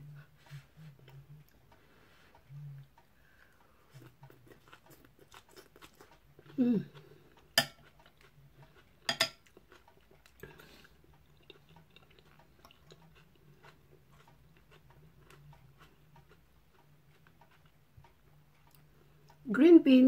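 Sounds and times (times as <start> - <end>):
low steady hum: 0.0 - 20.0
person chewing: 0.4 - 19.4
cutlery clinking on ceramic bowl: 7.6 - 7.9, 9.1 - 9.5.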